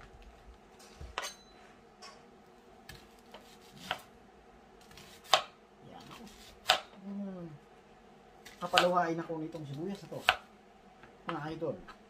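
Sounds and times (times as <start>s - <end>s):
knife chopping onion on board: 2.9s - 4.1s, 4.8s - 7.0s, 8.4s - 10.5s.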